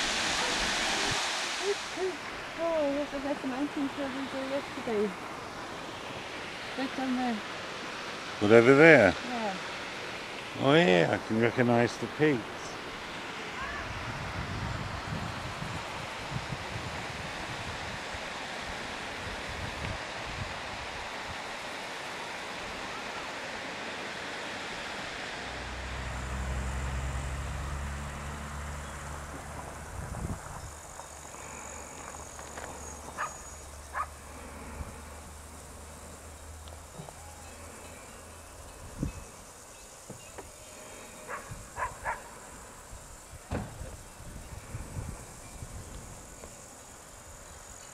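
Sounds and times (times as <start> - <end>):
wind buffeting microphone: 13.6 - 18.2, 29.4 - 31.0, 42.9 - 46.4
insect chirring: 25.5 - 47.9.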